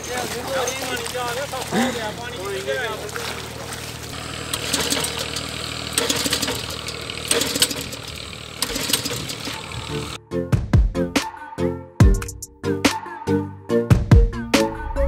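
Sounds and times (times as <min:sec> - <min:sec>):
water pump engine running: 0:00.0 - 0:10.2
sharp clatters: 0:04.5 - 0:10.2.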